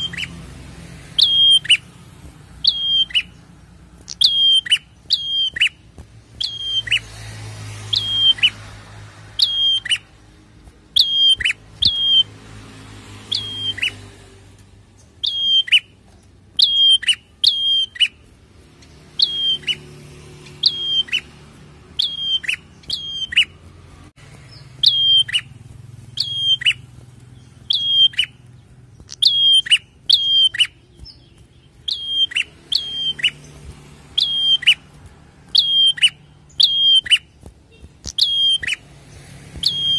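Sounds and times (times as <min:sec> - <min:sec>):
bird chirping: 0:00.0 - 0:39.9.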